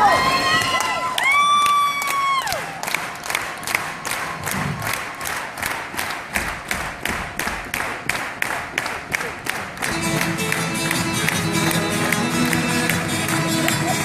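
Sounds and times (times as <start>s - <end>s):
hand claps keeping a beat: 1.6s - 14.0s
acoustic guitars and violin playing: 9.9s - 14.0s.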